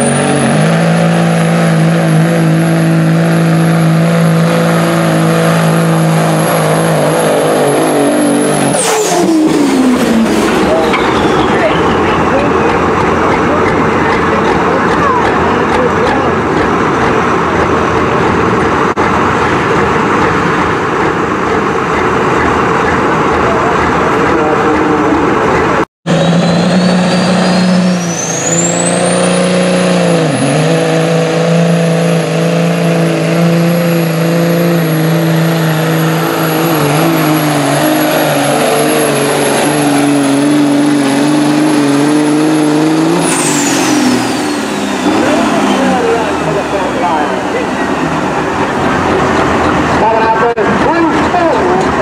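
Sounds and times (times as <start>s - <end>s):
rough diesel engine running: 0.0s - 52.0s
truck engine under full load: 0.0s - 52.0s
turbocharger whistle: 3.8s - 12.6s, 26.1s - 47.9s.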